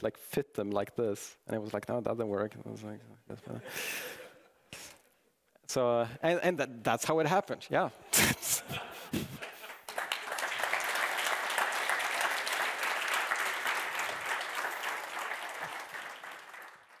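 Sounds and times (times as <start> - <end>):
audience applauding: 9.1 - 17.0.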